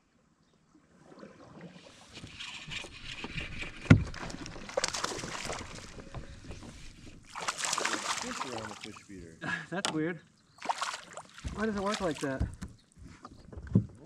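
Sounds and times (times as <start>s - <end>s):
water lapping against kayak hull: 0.8s - 9.2s, 10.6s - 14.0s
loud knock on hull: 11.4s - 12.7s.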